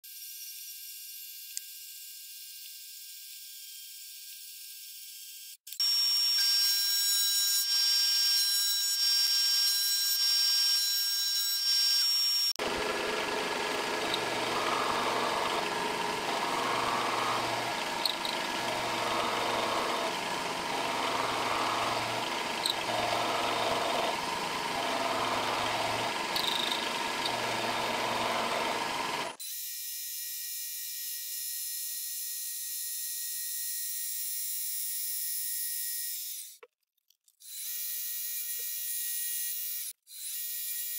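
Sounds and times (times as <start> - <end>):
high saw whine: 10.0 - 29.4
milling machine cutting metal: 12.0 - 29.4.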